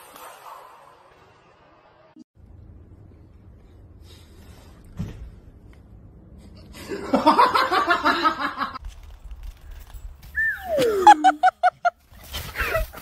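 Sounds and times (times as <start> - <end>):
person laughing hard: 10.7 - 12.0.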